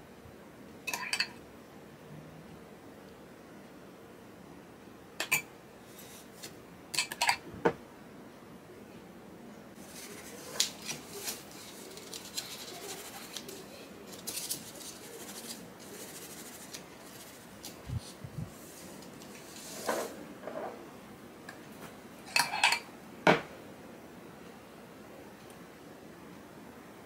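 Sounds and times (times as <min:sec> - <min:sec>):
metal spoon clinking in glass bowl: 0:00.9 - 0:01.4.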